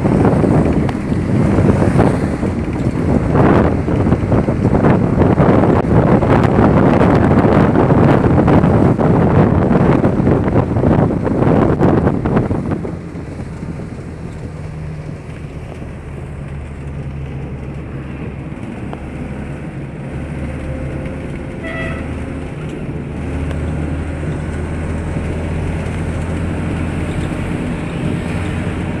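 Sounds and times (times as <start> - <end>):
minibus engine running: 0.0 - 29.0
road noise: 0.0 - 29.0
short horn toot: 21.6 - 22.2.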